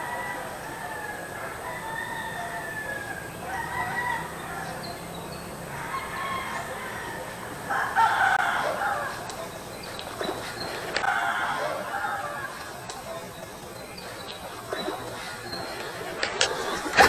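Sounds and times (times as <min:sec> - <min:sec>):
rooster crowing: 0:00.0 - 0:13.4.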